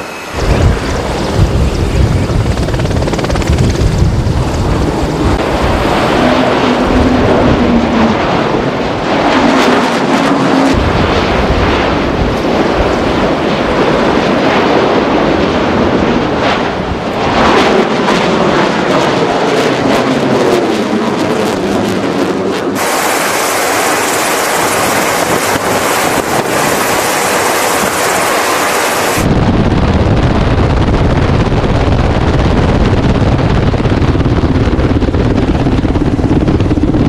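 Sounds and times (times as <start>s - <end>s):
jet flying past: 0.0s - 31.8s
aircraft engine noise: 0.0s - 37.0s
wind on microphone: 0.0s - 37.0s.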